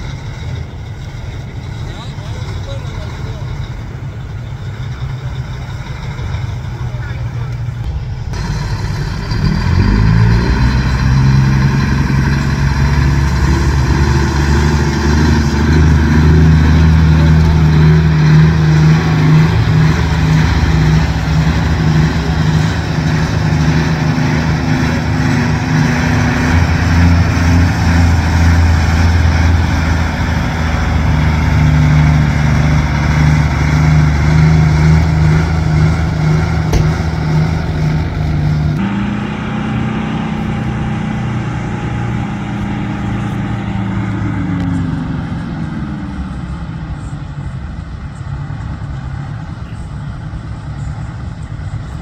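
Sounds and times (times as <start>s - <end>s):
diesel truck engine pulling away: 0.0s - 52.0s.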